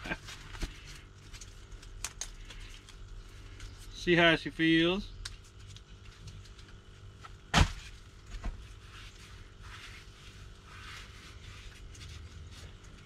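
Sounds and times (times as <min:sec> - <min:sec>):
sharp thump: 0:07.5 - 0:07.8.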